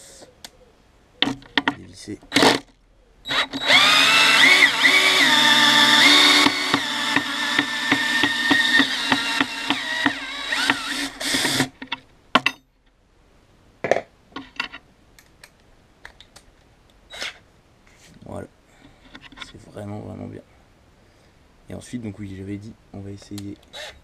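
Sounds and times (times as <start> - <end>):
cordless drill motor whining: 3.3 - 11.8, 23.7 - 24.0.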